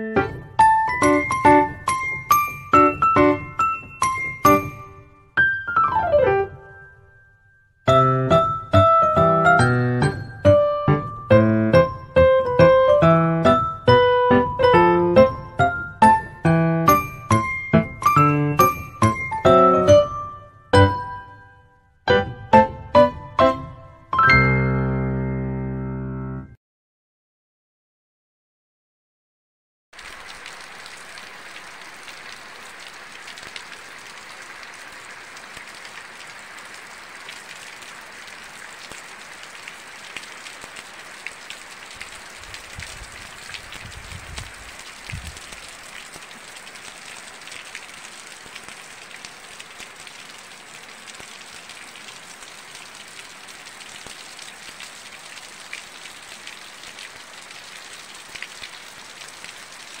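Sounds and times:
steady rain falling: 0:00.0 - 0:04.9, 0:07.7 - 0:20.2, 0:30.0 - 1:00.0.

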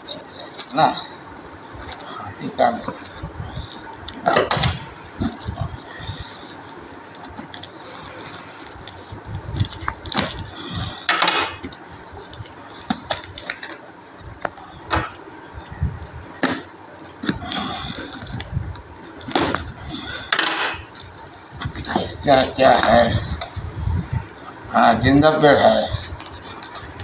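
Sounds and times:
tape tearing rasps: 0:01.8 - 0:15.2, 0:16.2 - 0:24.4.

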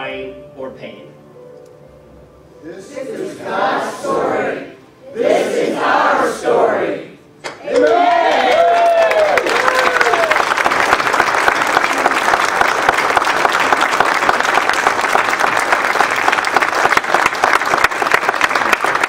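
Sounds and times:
shouted cheer: 0:07.6 - 0:10.5
crowd applauding: 0:07.6 - 0:19.0.

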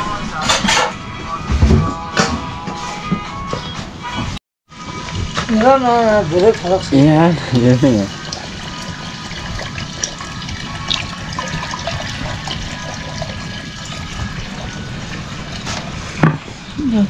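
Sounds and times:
running water: 0:04.7 - 0:17.0
milk pouring through strainer: 0:07.3 - 0:15.8.

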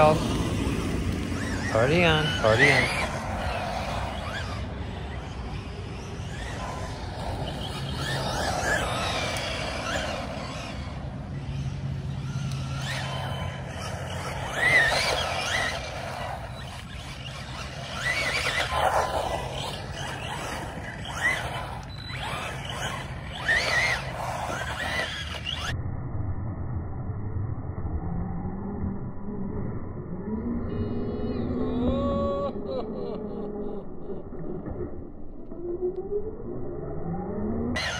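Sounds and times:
electric motor whining: 0:00.0 - 0:25.7.

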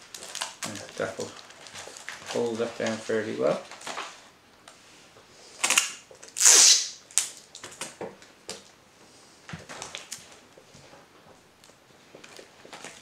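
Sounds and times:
paper rustling and crinkling: 0:00.0 - 0:04.3, 0:12.1 - 0:13.0
sticky tape rasping: 0:05.6 - 0:07.0.

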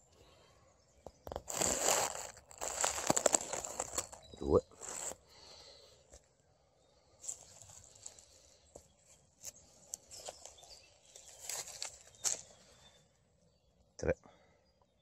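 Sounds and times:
twigs crackling: 0:01.2 - 0:05.6, 0:07.2 - 0:08.8, 0:09.4 - 0:12.8
footsteps on dry leaves: 0:01.3 - 0:05.2, 0:07.2 - 0:08.4, 0:09.4 - 0:12.7.

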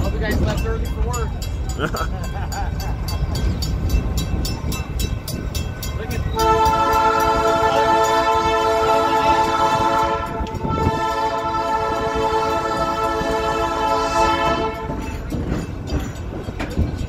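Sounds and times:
crossing bell dinging: 0:00.0 - 0:17.0
train rumbling: 0:00.0 - 0:17.0
train horn chord: 0:06.4 - 0:15.2.

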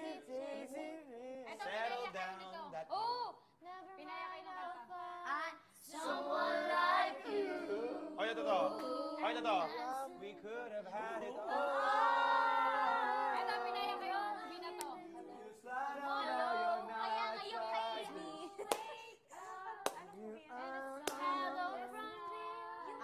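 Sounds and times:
young people singing: 0:00.0 - 0:01.9, 0:04.0 - 0:23.0
hand claps: 0:18.7 - 0:19.0, 0:19.8 - 0:20.1, 0:21.0 - 0:21.4.

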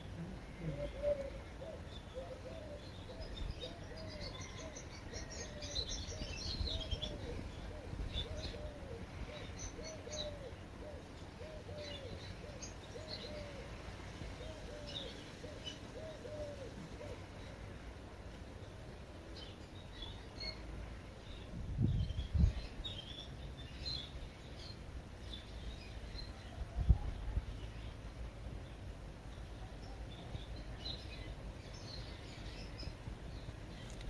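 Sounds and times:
bird low arching call: 0:00.0 - 0:13.8
birds chirping and twittering: 0:00.0 - 0:34.0.

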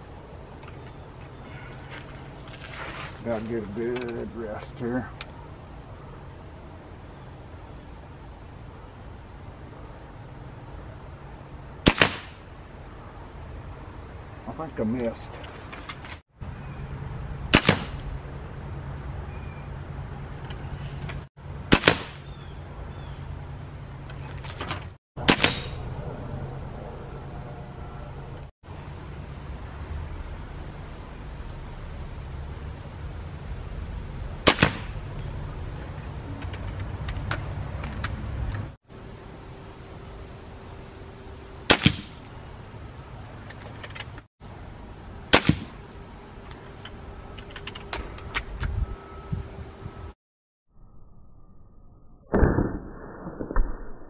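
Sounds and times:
air rifle shots: 0:11.8 - 0:12.4, 0:17.5 - 0:18.0, 0:21.7 - 0:22.3, 0:25.2 - 0:25.8, 0:34.4 - 0:35.0, 0:41.7 - 0:42.2, 0:45.3 - 0:45.8.

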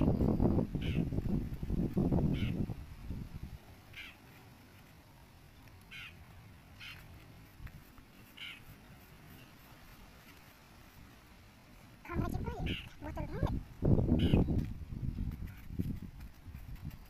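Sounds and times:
faint bird calls: 0:00.8 - 0:01.1, 0:02.3 - 0:02.6, 0:03.9 - 0:04.4, 0:05.8 - 0:06.2, 0:06.8 - 0:07.1, 0:08.2 - 0:09.6.

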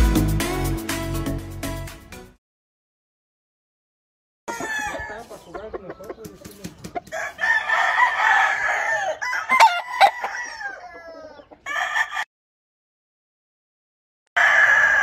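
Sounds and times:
roosters crowing: 0:04.5 - 0:05.6, 0:07.0 - 0:12.3, 0:14.4 - 0:15.0.

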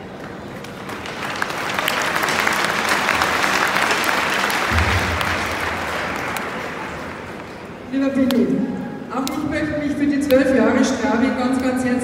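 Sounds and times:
crowd applauding: 0:00.0 - 0:07.8.

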